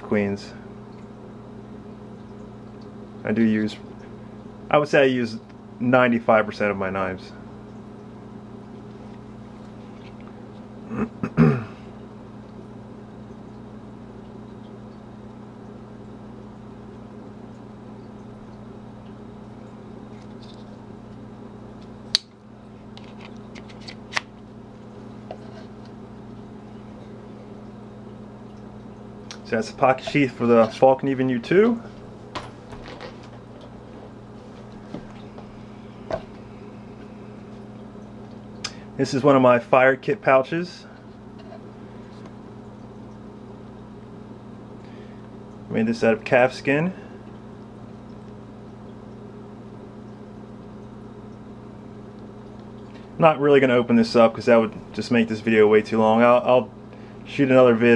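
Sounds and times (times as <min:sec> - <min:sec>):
low electrical hum: 0:00.0 - 0:57.9
man clearing throat: 0:10.9 - 0:11.9.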